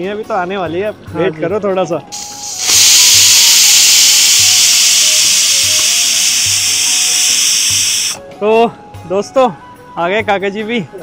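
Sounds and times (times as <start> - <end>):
pressure cooker whistle hissing: 2.1 - 8.2.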